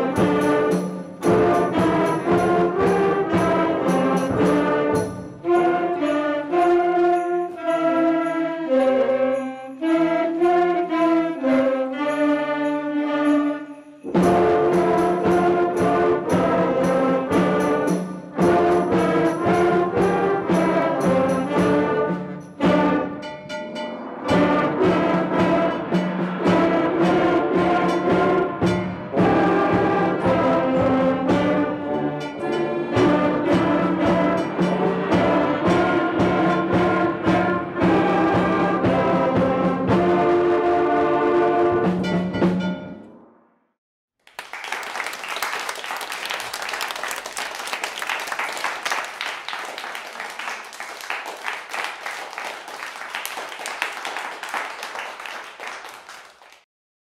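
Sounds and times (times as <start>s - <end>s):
brass band fight song: 0.0s - 43.1s
audience applause: 44.2s - 56.6s.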